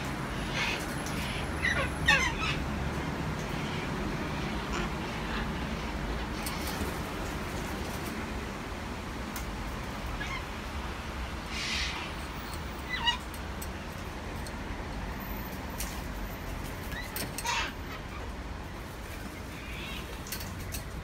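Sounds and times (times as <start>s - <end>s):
traffic rumble: 0.0s - 21.0s
cockatoo mewing calls: 0.3s - 2.6s.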